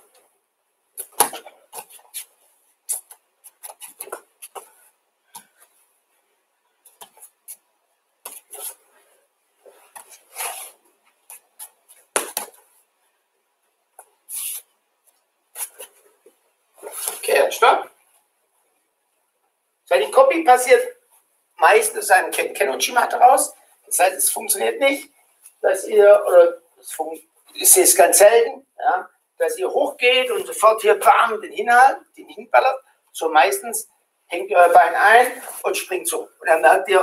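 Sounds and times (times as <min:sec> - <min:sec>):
bare feet on mats: 0:01.0 - 0:06.2, 0:08.2 - 0:12.9, 0:13.9 - 0:17.4
cloth jacket rustling: 0:01.0 - 0:13.2, 0:14.0 - 0:18.3, 0:34.6 - 0:35.9
sharp thumps on mats: 0:12.1 - 0:12.6.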